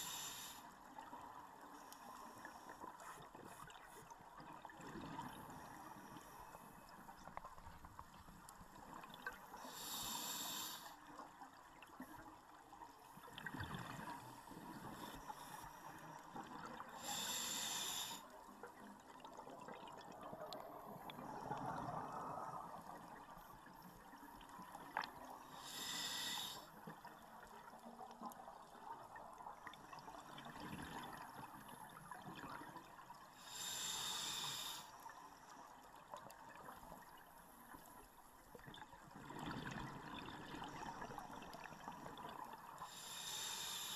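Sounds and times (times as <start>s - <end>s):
underwater noise: 0.0s - 43.9s
exhaled bubbles underwater: 19.0s - 23.3s, 39.1s - 42.8s.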